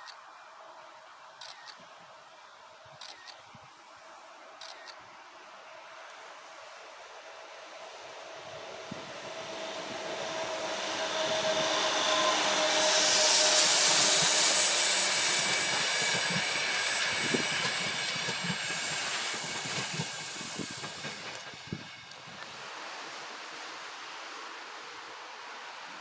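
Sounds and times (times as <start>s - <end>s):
train wheels rushing on rails: 6.1s - 22.9s.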